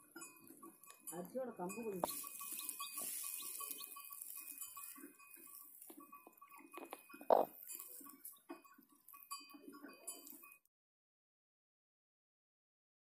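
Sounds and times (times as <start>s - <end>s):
hen clucking softly: 2.0s - 4.3s, 5.8s - 8.4s.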